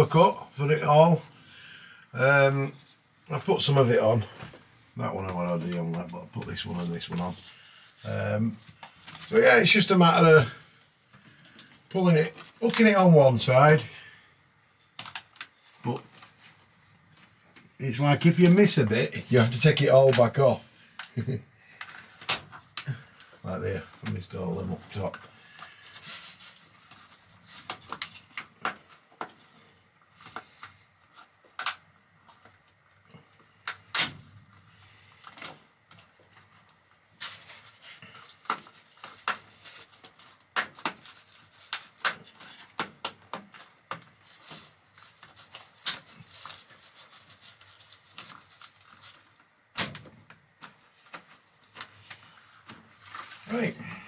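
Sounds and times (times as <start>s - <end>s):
plastic cover strips snapping on: 31.6s - 31.8s, 38.4s - 43.2s, 44.2s - 49.2s.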